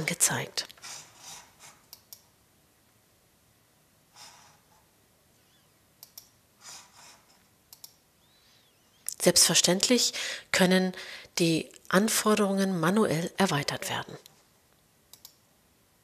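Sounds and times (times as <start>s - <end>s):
computer mouse clicks: 1.7s - 2.4s, 6.0s - 6.4s, 7.7s - 8.0s, 15.1s - 15.4s
soft breaths: 4.1s - 5.7s, 6.6s - 7.6s, 10.1s - 11.4s.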